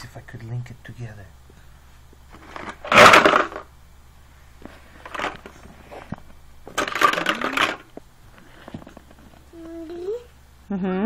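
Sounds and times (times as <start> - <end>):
plastic blocks clattering: 2.4 - 3.7, 5.0 - 5.6, 6.7 - 7.9.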